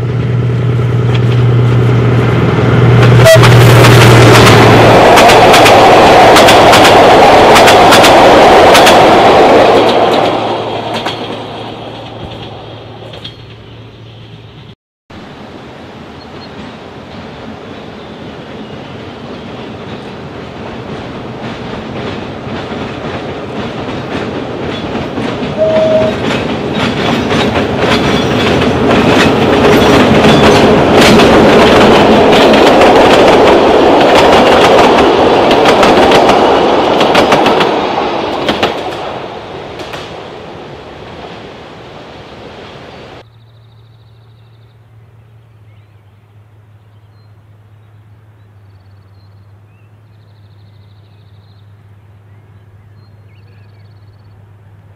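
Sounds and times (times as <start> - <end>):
diesel locomotive engine: 0.0 - 54.9
train wheels clicking over rail joints: 2.6 - 13.8, 18.6 - 40.2.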